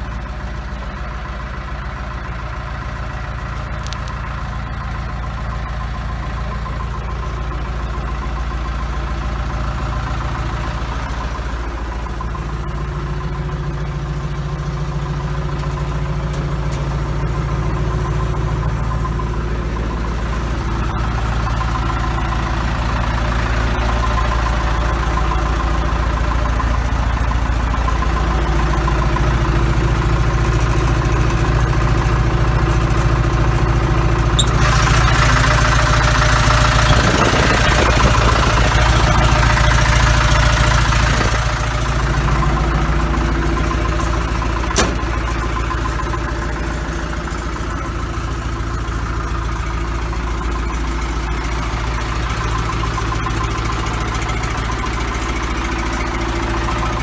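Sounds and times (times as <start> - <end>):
diesel engine idling: 0.0 - 57.0
sharp click: 44.8 - 45.1.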